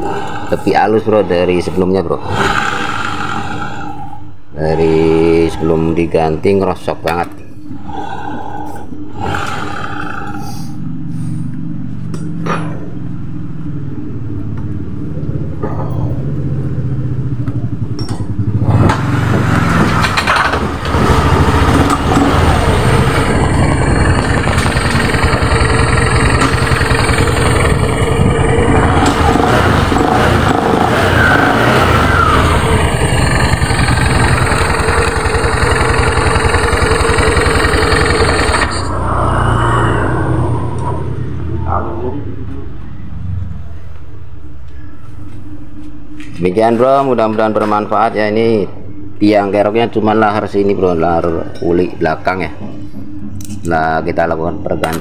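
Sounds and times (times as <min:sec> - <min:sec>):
scooter engine running: 0:16.9 - 0:39.0
drive belt and pulley spinning: 0:18.8 - 0:39.0.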